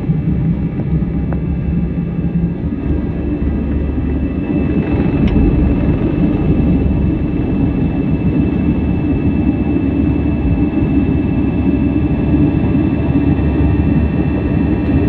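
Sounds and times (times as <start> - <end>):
jet engines rumbling with high whine: 0.0 - 15.0.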